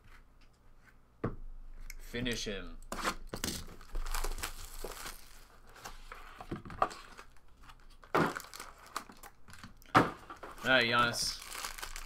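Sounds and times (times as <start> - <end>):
wrapper crinkling: 3.5 - 5.7, 7.1 - 12.0
cards rustling: 10.4 - 12.0.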